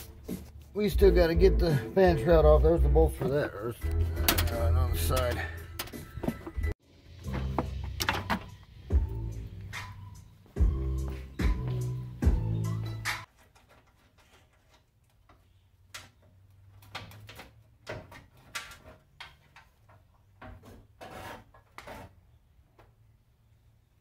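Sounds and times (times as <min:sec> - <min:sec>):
clicks and scrapes on metal: 0:16.8 - 0:22.4.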